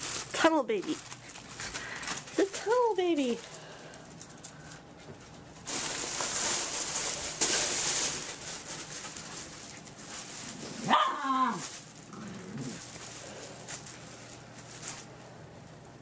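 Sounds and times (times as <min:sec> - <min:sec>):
fabric tunnel rustling: 0:05.6 - 0:15.1
puppy barking: 0:10.8 - 0:11.3.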